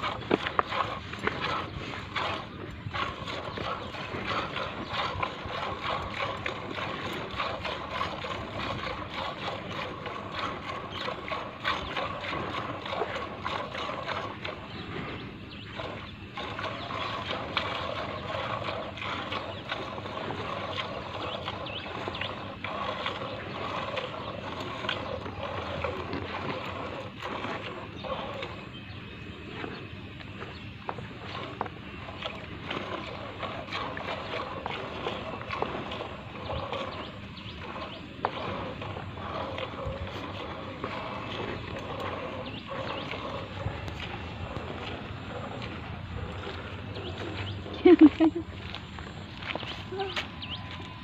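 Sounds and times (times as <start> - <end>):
milk squirting into metal bucket: 15.7 - 28.6, 30.9 - 48.8.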